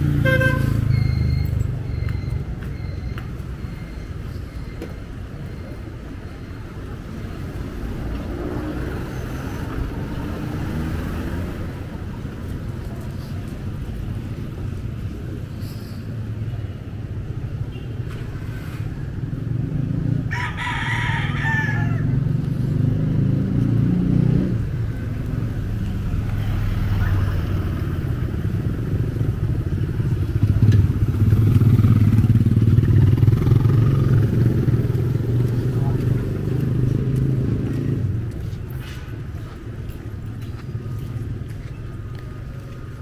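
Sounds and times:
rooster crowing: 0:20.3 - 0:22.2
motorcycle engines running: 0:21.3 - 0:43.0.

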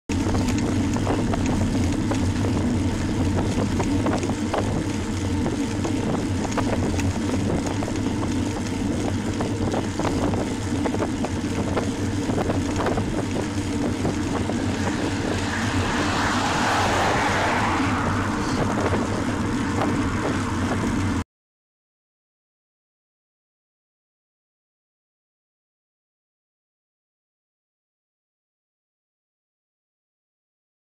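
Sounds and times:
bicycle rattles over bumps: 0:00.1 - 0:21.2
wind and road noise: 0:00.1 - 0:21.2
car passing close: 0:13.2 - 0:21.2.

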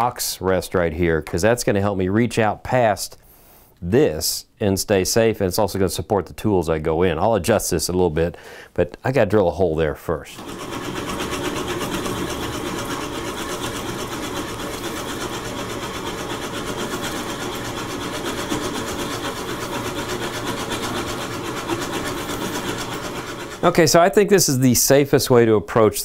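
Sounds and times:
wood lathe drilling into log: 0:10.4 - 0:24.1.

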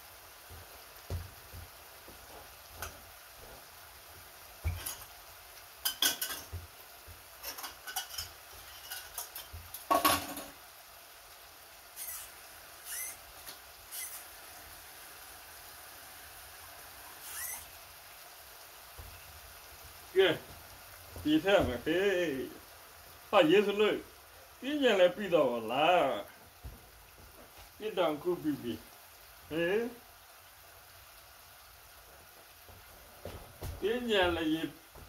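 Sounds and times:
utensils clinking on pots: 0:04.7 - 0:05.1, 0:05.8 - 0:06.6, 0:07.4 - 0:10.6.

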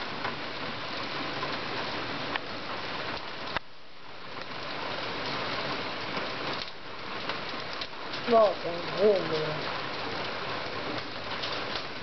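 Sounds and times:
heavy rain hissing: 0:00.0 - 0:12.0.

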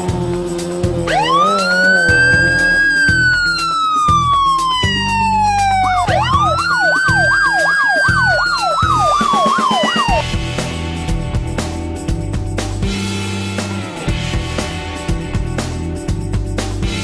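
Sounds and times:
background music with a beat: 0:00.0 - 0:17.0
police siren wailing: 0:01.0 - 0:10.2
fast yelping siren warble: 0:01.1 - 0:10.2.

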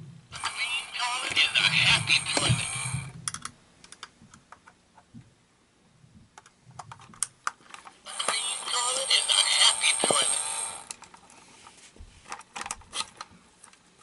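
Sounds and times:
toy's recorded voice: 0:00.4 - 0:03.0, 0:08.1 - 0:10.7.

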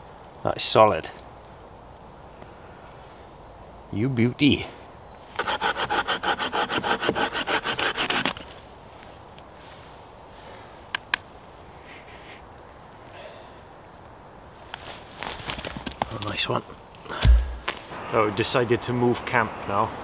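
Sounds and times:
faint bird chirps: 0:01.8 - 0:05.4, 0:08.5 - 0:15.2, 0:16.2 - 0:17.9
hand saw cutting wood: 0:05.4 - 0:08.4
sharp clicks: 0:10.9 - 0:11.2.

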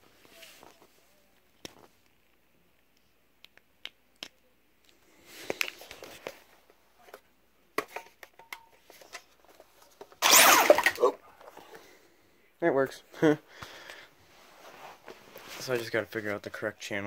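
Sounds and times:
scuffing and rustling: 0:14.2 - 0:16.4.

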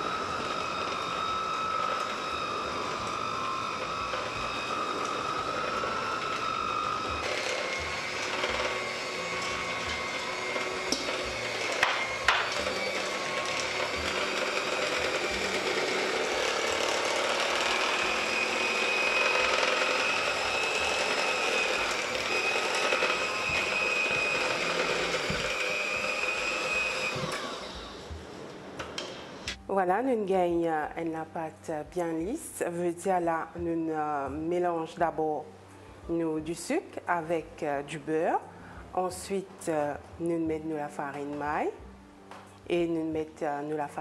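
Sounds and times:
electric hand mixer whisking: 0:00.0 - 0:28.8.

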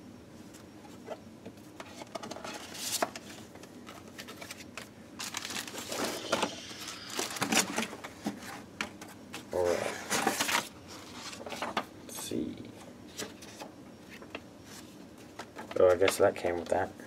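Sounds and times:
paper and packaging rustling: 0:01.8 - 0:11.9.

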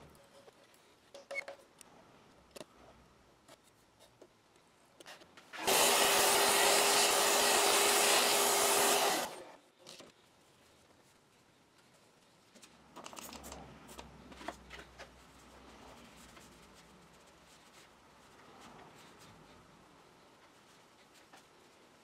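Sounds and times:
shop vacuum running: 0:05.6 - 0:09.4.

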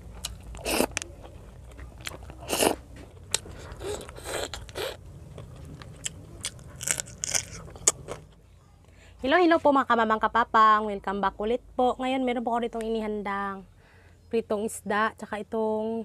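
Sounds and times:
person chewing food: 0:00.0 - 0:08.4
loud crunches: 0:00.2 - 0:08.3.

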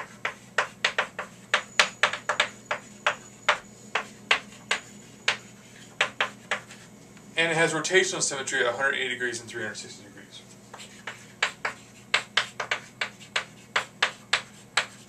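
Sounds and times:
chalk tapping on chalkboard: 0:00.0 - 0:06.9, 0:10.7 - 0:15.0.

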